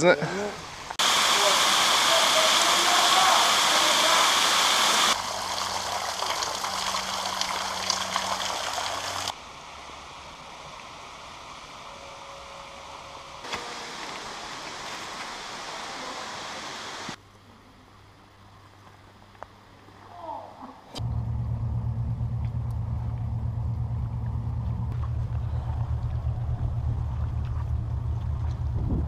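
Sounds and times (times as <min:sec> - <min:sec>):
outdoor noise: 0:00.0 - 0:29.0
waterfall rushing: 0:00.6 - 0:12.5, 0:13.4 - 0:17.2.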